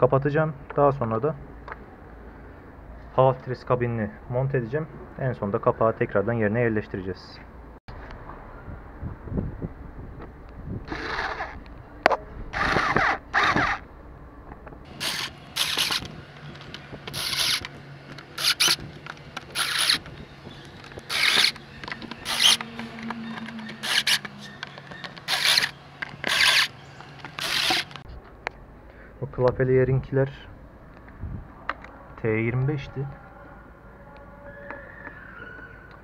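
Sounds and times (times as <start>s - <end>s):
electric screwdriver driving screws: 12.6s - 13.8s, 14.9s - 17.8s, 18.4s - 20.2s, 20.8s - 24.3s, 25.2s - 28.0s.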